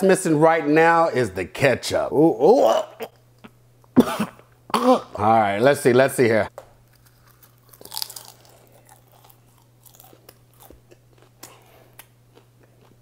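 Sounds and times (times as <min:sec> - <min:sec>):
popcorn being chewed: 0:06.8 - 0:13.0.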